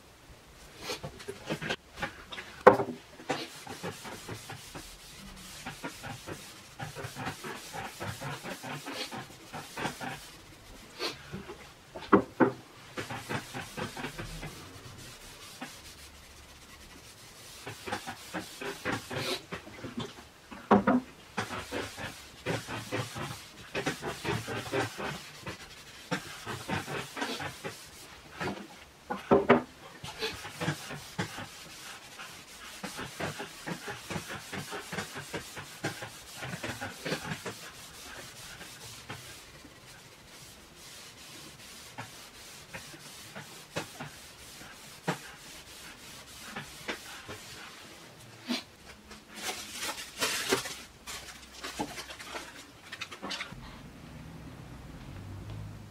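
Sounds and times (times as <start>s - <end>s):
rag rubbing over wooden board: 3.2s - 20.2s, 21.3s - 48.7s.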